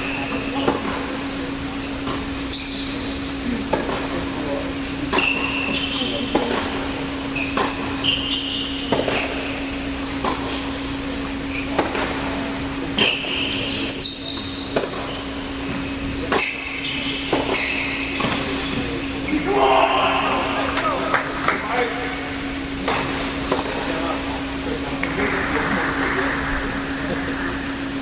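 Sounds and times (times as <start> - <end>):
sneakers squeaking: 0.0 - 4.2, 4.8 - 25.0
steady hum: 0.0 - 28.0
tennis balls struck by rackets: 11.7 - 12.2, 14.7 - 15.1.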